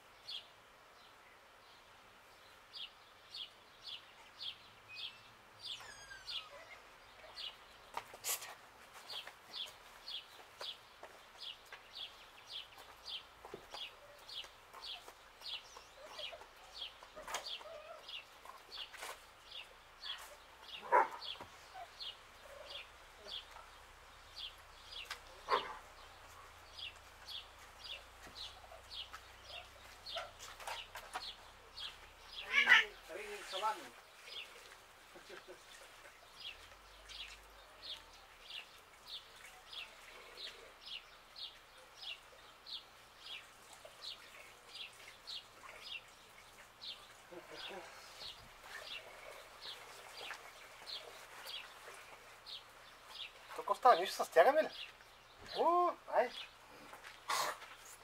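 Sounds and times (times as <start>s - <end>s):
bird chirping: 0.2s - 57.2s
lower bird calls: 3.9s - 7.6s.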